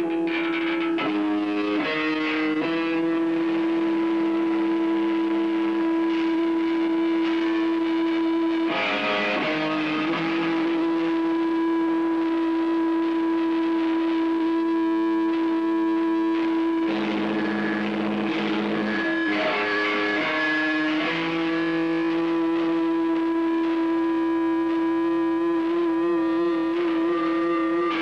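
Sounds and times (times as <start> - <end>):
distorted electric guitar: 0.0 - 28.0.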